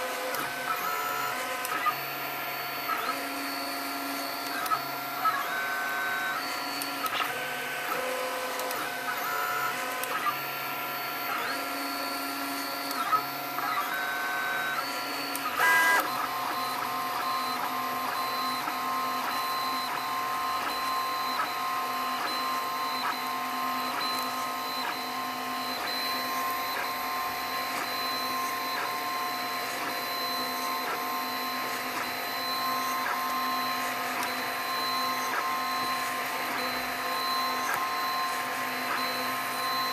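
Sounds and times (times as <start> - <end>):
stepper motors whining: 7.9 - 29.9.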